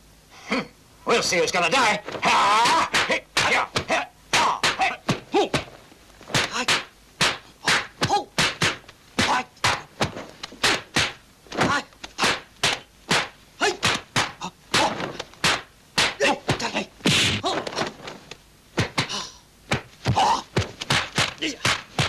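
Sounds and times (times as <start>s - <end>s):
fighters shouting: 1.8s - 5.7s, 6.4s - 9.9s, 11.5s - 17.8s, 20.1s - 20.7s, 21.4s - 21.9s
punches whacking and thudding: 2.0s - 22.0s.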